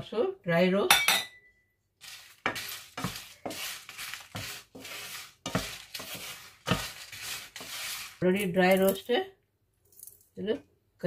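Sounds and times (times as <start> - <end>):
spatula scraping a frying pan: 2.0 - 9.0.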